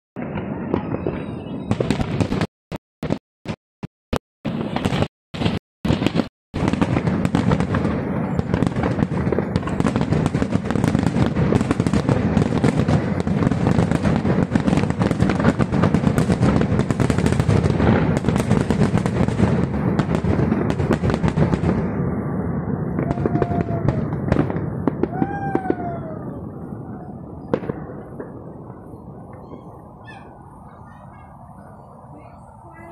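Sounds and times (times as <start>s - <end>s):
fireworks shell bursts and crackling: 0.2s - 21.9s.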